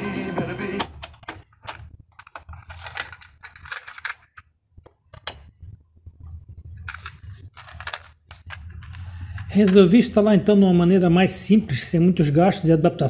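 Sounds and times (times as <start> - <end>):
cassette tape plastic clicks and rattles: 0.8 - 5.5.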